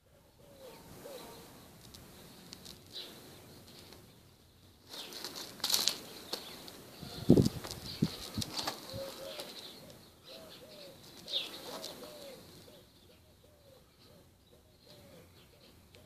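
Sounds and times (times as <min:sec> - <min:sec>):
dove cooing: 0:00.0 - 0:01.6, 0:06.9 - 0:16.0.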